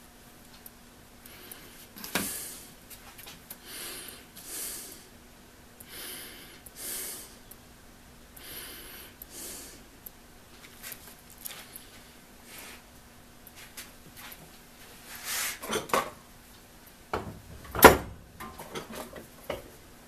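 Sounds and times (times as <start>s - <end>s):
faint steady hum: 0.0s - 20.0s
person breathing through nose: 3.6s - 5.1s, 5.8s - 7.4s, 8.4s - 9.9s.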